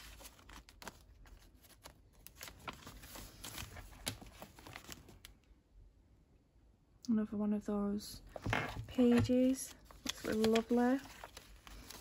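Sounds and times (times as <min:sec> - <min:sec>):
paper rustling: 0:00.0 - 0:05.4, 0:08.3 - 0:12.0.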